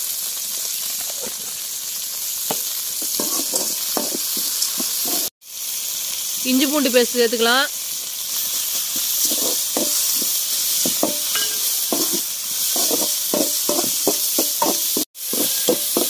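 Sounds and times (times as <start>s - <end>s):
food sizzling in hot oil: 0.0s - 16.0s
metal ladle scraping pan: 3.0s - 4.2s, 5.0s - 5.3s, 9.2s - 16.0s.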